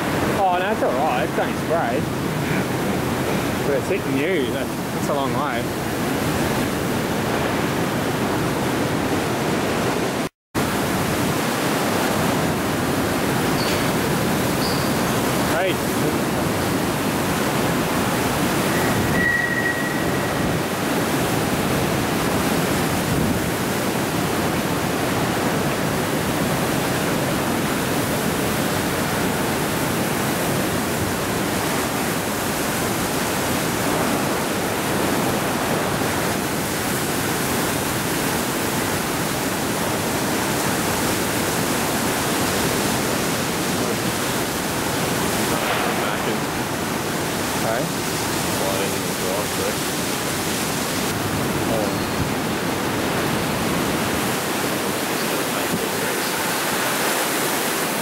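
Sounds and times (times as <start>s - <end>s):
wind and driving rain: 0.0s - 58.0s
high whistle: 18.7s - 20.6s.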